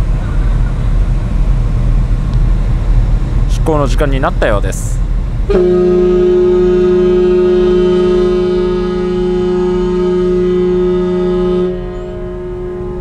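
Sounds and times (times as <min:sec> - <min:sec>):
ship horn long blast: 0:05.4 - 0:13.0.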